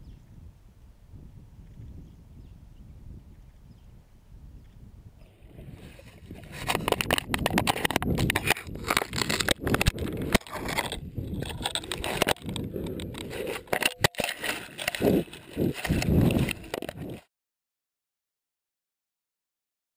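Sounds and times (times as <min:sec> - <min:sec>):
animals rubbing against microphone: 0:05.2 - 0:17.2.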